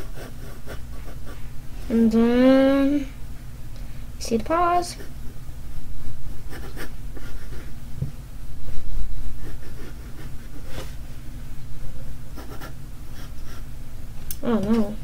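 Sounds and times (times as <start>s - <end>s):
pencil scratching on paper: 0.0s - 1.4s, 6.3s - 7.8s, 9.3s - 11.0s, 12.4s - 13.6s.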